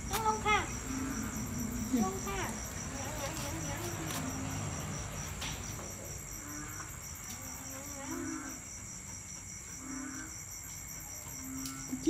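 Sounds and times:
night insects chirping: 0.0s - 12.0s.

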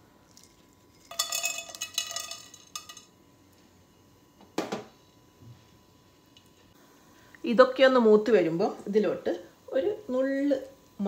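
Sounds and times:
spices clattering into metal pot: 0.3s - 3.1s.

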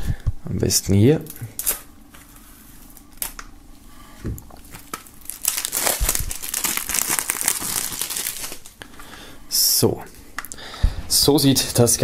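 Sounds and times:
plastic film scraping and clicking: 4.7s - 8.7s
plastic film crinkling and tearing: 4.7s - 8.8s.

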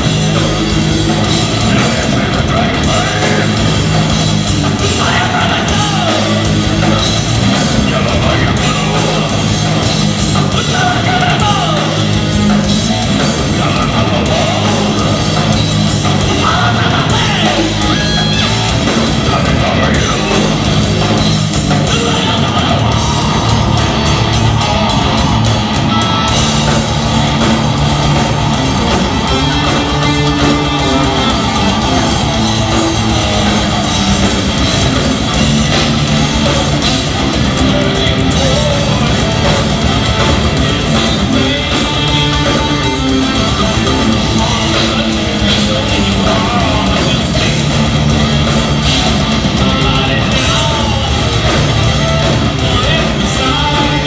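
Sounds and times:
drum kit: 0.0s - 54.0s
electric guitars: 0.0s - 54.0s
metal band playing: 0.0s - 54.0s.

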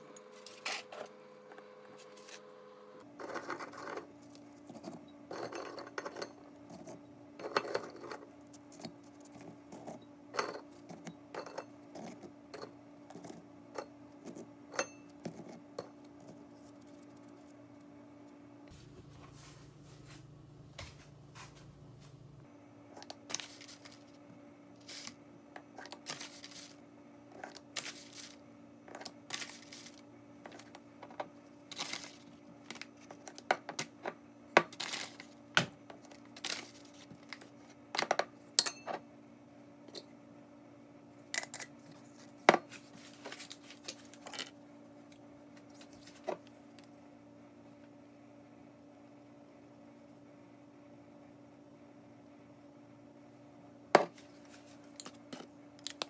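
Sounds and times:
steady low hum: 0.0s - 33.3s
glass jars clinking: 5.3s - 6.4s.

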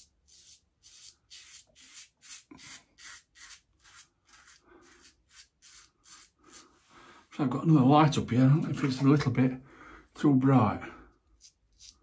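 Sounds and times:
razor scraping stubble: 0.0s - 6.8s, 11.3s - 12.0s.

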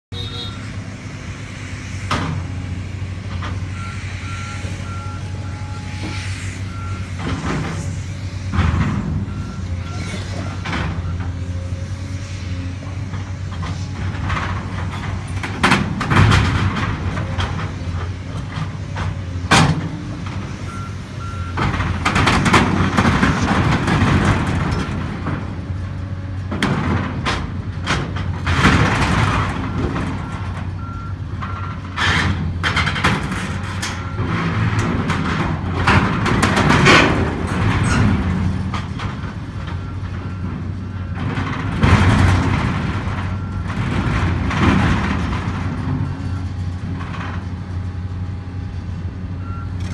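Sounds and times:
beeping alarm: 0.1s - 0.8s
excavator diesel engine: 0.1s - 49.9s.

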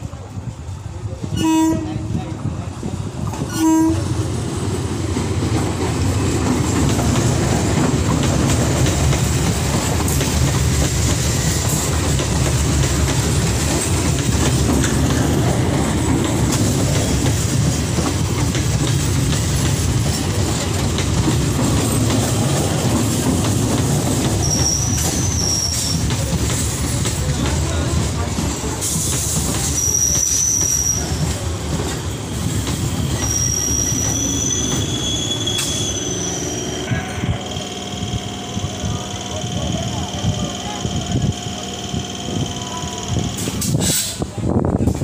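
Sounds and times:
train wheels rumbling on rails: 0.0s - 45.0s
train horn toot: 1.3s - 2.2s, 3.5s - 4.2s
high squeal: 24.4s - 26.0s, 29.7s - 31.2s, 32.9s - 38.2s.

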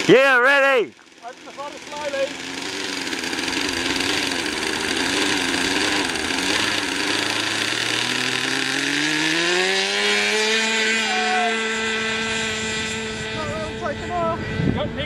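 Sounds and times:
model plane engine revving: 0.0s - 15.0s.

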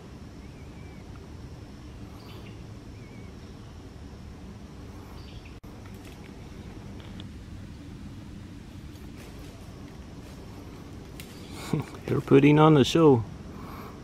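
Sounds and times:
low woodland rumble: 0.0s - 14.0s
faint bird chirps: 0.3s - 1.2s, 1.8s - 4.0s, 5.0s - 5.6s, 11.2s - 12.0s.

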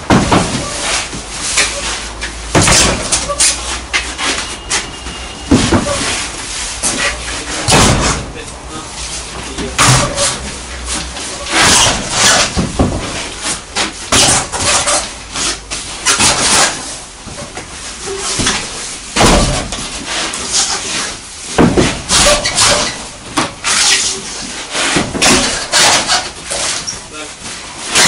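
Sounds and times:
tyres thudding on metal floor: 0.0s - 1.8s, 2.5s - 3.4s, 5.4s - 6.2s, 6.9s - 8.4s, 9.6s - 10.4s, 21.5s - 23.6s.

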